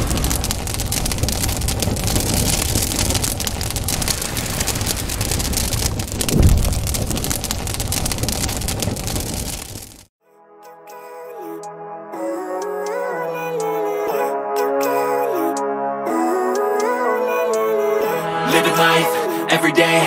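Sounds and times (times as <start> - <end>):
crackling and hissing fire and water: 0.0 - 10.1
deep surge: 4.1 - 9.1.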